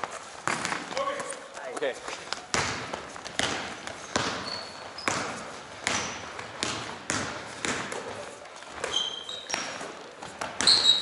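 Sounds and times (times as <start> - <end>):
basketball bouncing on wooden floor: 2.4 - 11.0
shoe squeaks: 3.7 - 6.4, 8.6 - 11.0.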